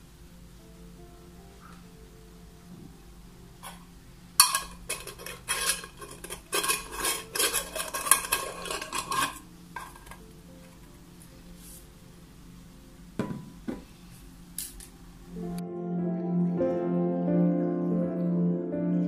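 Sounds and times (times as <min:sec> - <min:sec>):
metal lid scraping on glass jar: 0:04.4 - 0:10.2.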